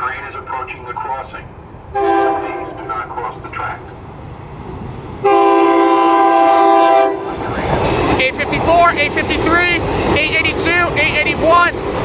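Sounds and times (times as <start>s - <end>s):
train running noise: 0.0s - 12.0s
train horn blasts: 1.9s - 2.9s, 5.2s - 7.4s.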